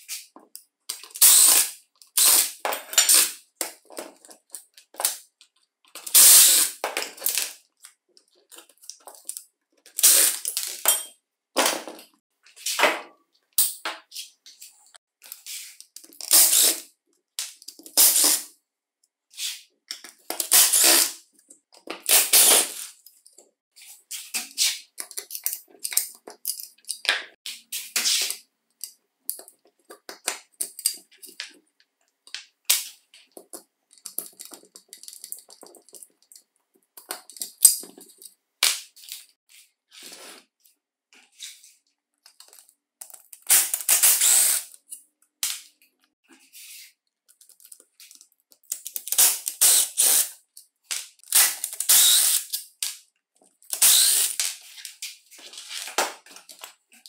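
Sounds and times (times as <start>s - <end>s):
screwdriver and parts clicking on metal: 24.4s - 27.1s, 28.7s - 38.4s
cordless screwdriver driving screws: 44.0s - 44.6s, 49.6s - 50.3s, 51.3s - 52.5s, 53.7s - 54.4s.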